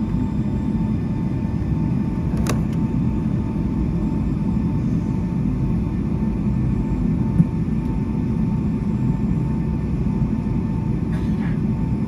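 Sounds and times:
aircraft cabin rumble: 0.0 - 12.0
faint engine whine: 0.0 - 12.0.

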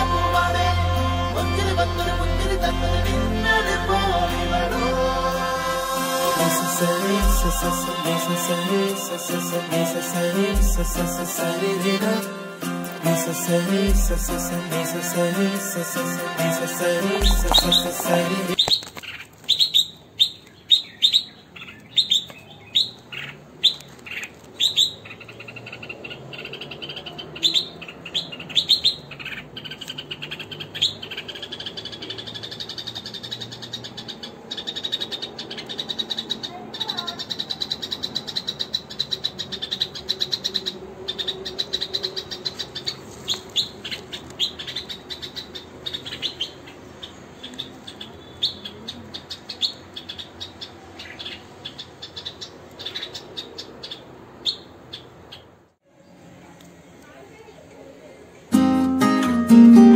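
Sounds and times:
thin steady high note: 0.0 - 18.6
birds chirping: 0.0 - 56.2.

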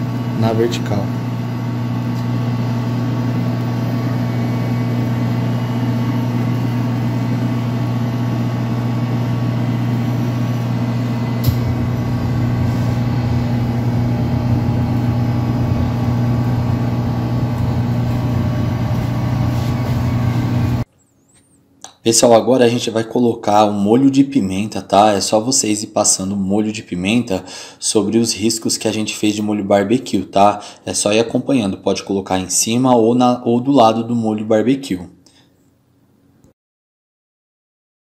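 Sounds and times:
low machine hum: 0.0 - 21.3
sharp click: 11.4 - 11.9.

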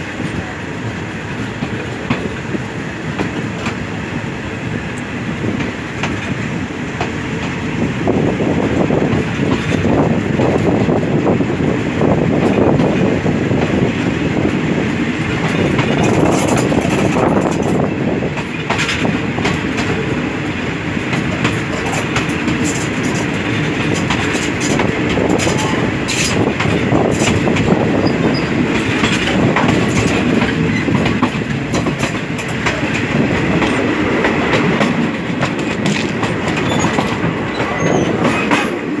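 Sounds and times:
train wheels rumbling on rails: 0.0 - 39.0
wheels clicking over rail joints: 14.4 - 20.2, 20.9 - 39.0.

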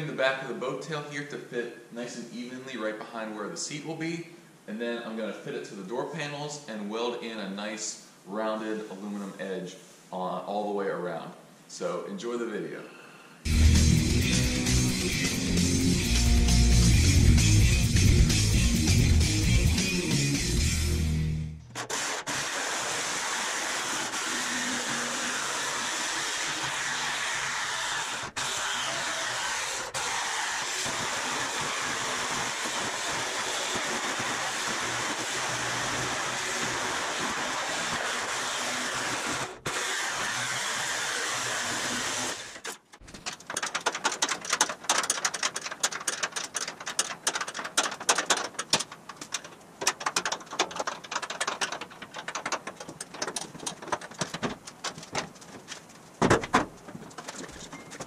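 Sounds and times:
electric sheet-metal shear cutting: 21.8 - 42.8
knocks and clatter: 42.9 - 58.0.

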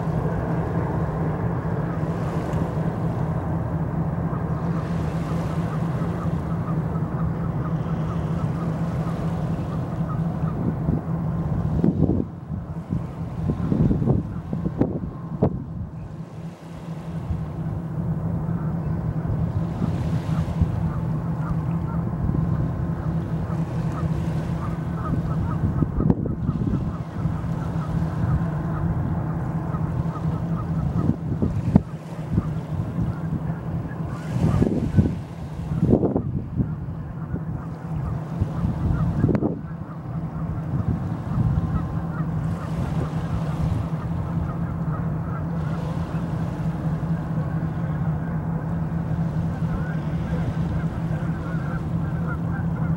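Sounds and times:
faint honking bird calls: 0.0 - 52.9
ship engine drone: 0.0 - 52.9
steady low rumble: 0.0 - 52.9
wind on microphone: 10.0 - 16.4, 18.5 - 44.7.

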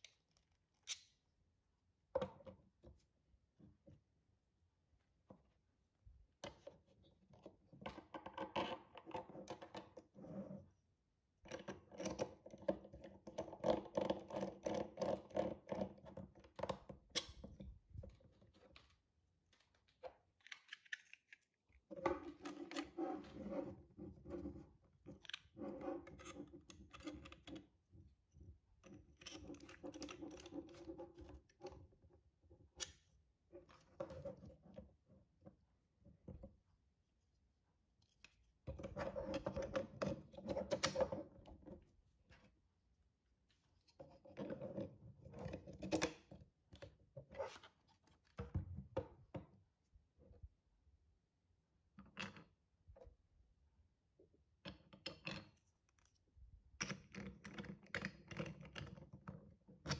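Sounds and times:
plastic parts scraping and clicking: 11.5 - 27.7, 28.8 - 31.8.

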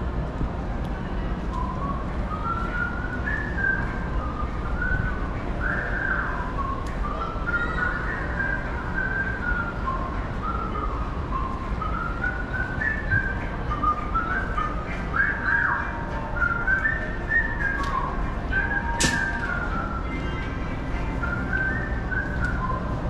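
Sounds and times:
background noise: 0.0 - 23.0
whistle-like tune: 1.5 - 20.4, 21.0 - 23.0
sharp click: 19.0 - 19.4.

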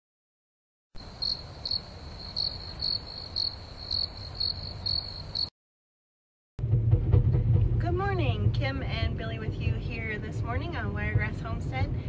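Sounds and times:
insects chirping: 1.0 - 5.5
low rumble: 6.6 - 12.0.

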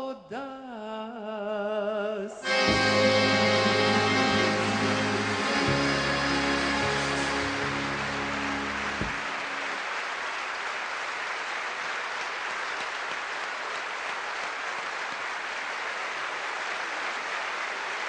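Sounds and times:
ensemble held note: 2.4 - 9.8
audience applauding: 2.5 - 18.0.

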